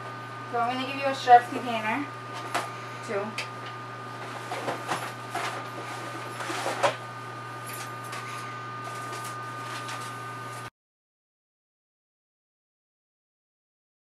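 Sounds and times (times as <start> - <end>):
steady electrical hum: 0.0 - 10.7
boxes rustling and knocking: 4.2 - 7.0.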